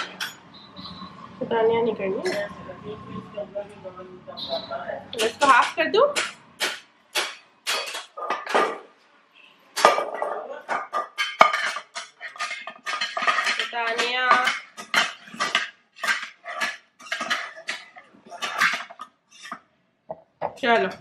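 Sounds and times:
knife scraping a plate: 11.2s - 19.6s.

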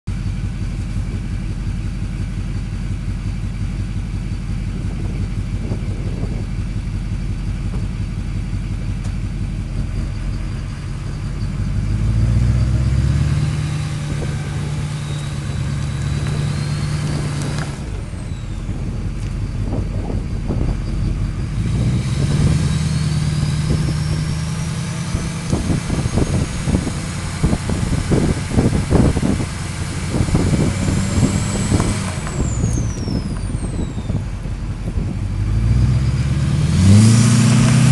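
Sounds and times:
choppy low rumble: 0.0s - 37.9s
diesel engine revving: 0.1s - 37.9s
turbo whistle: 14.4s - 17.2s.

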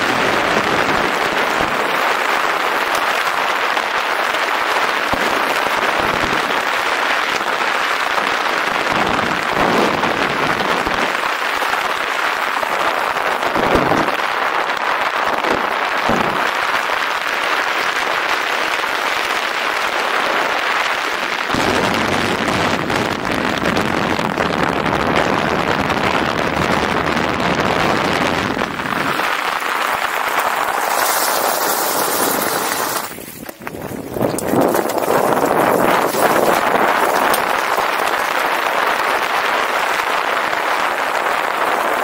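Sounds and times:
rolling noise: 0.0s - 7.4s, 26.5s - 42.0s
wind rushing on microphone: 8.6s - 17.2s, 21.4s - 42.0s.

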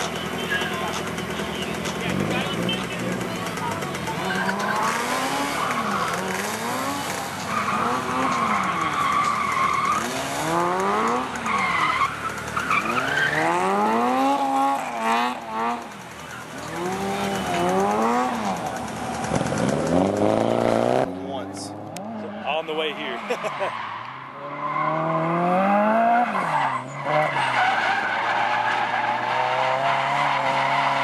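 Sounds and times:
car engine revving: 0.0s - 31.0s
tyres squealing: 0.2s - 10.5s.

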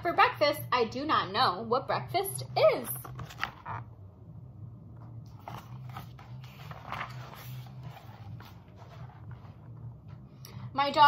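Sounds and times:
low steady hum: 0.0s - 11.0s
book pages rustling: 2.8s - 3.9s, 5.0s - 10.3s.

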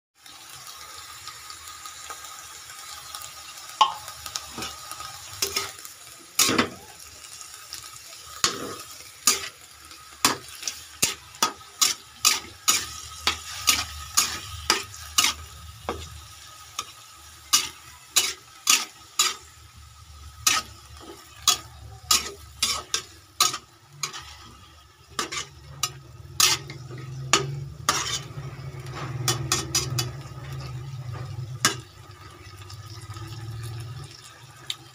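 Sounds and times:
hot oil sizzling: 0.2s - 34.9s
spatula clacking against wok: 20.3s - 24.4s, 25.2s - 31.9s.

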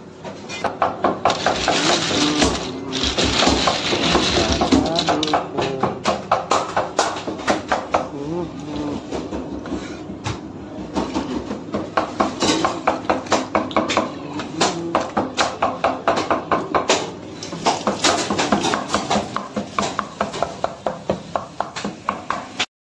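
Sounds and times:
knife chopping on plastic board: 0.7s - 8.1s.

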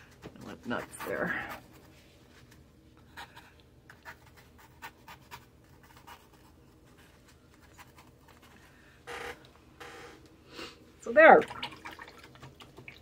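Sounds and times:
brush scratching on paper: 3.2s - 8.6s.

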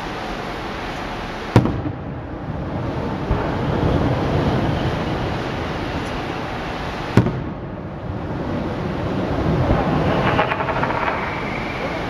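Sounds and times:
firework crackling: 0.0s - 12.0s
steady rumble: 0.0s - 12.0s
firework shell bang: 1.6s - 2.0s, 7.2s - 7.5s, 9.7s - 11.8s.

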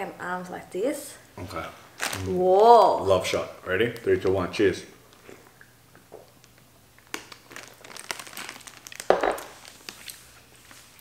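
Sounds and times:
crinkling rustling handling noise: 1.8s - 4.5s, 6.4s - 11.0s.

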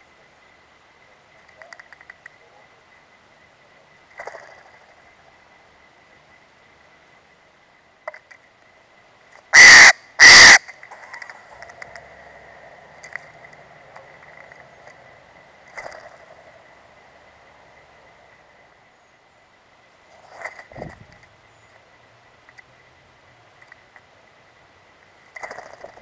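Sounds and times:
jay harsh calls: 9.6s - 10.7s.

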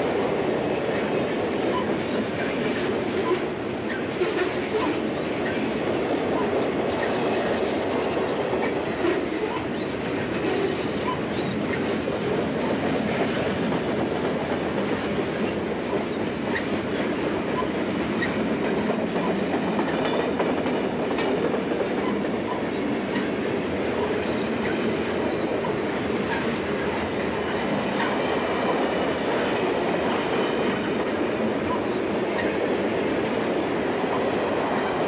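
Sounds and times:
train wheels rolling on rails: 0.0s - 35.0s
wheel clicks and squeaks: 8.6s - 11.9s, 22.0s - 23.3s, 25.6s - 26.5s.

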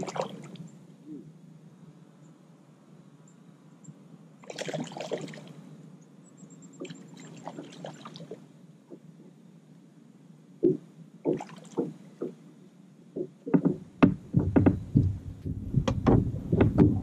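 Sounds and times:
fish splashing at water surface: 4.4s - 5.6s.

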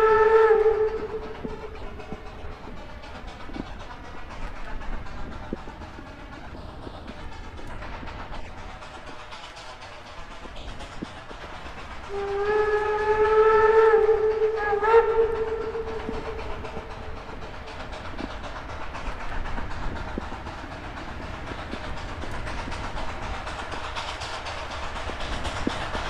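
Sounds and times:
steam locomotive whistle: 0.0s - 2.0s, 12.1s - 16.9s
approaching train: 0.0s - 26.0s.

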